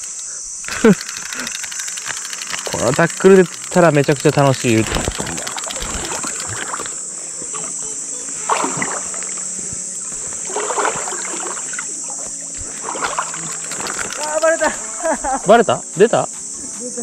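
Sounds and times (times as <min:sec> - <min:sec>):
insects buzzing: 0:00.0 - 0:17.0
water sloshing and splashing: 0:04.7 - 0:07.7, 0:08.3 - 0:14.6.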